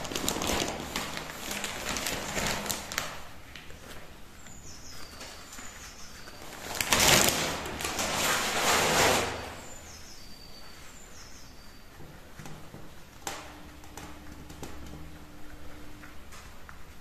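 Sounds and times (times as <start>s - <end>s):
soil rustling and scraping: 6.6s - 9.8s.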